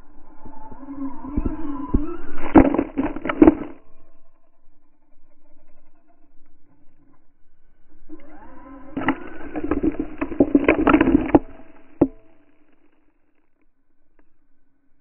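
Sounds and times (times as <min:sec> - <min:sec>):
electric motor whining: 0:00.0 - 0:03.8, 0:07.8 - 0:12.8.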